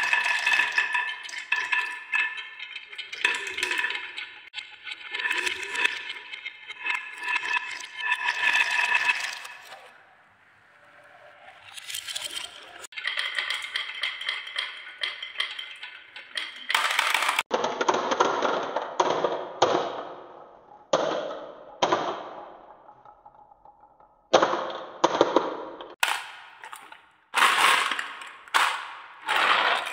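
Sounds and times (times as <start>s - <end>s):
balls rattling down wooden track: 11.8s - 29.9s.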